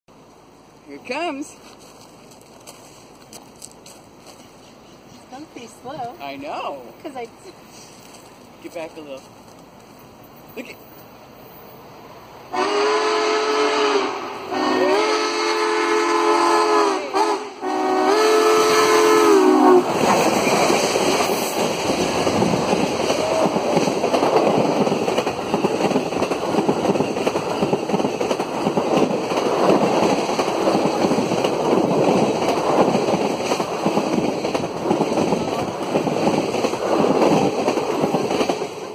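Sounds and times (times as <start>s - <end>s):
train rushing past: 4.0s - 38.9s
steam locomotive chime whistle: 12.5s - 19.8s.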